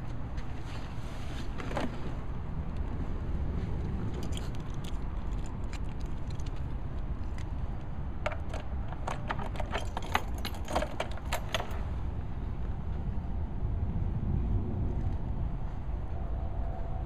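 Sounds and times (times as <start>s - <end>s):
steady low rumble: 2.1s - 17.0s
metallic jingling clicks: 4.1s - 11.9s.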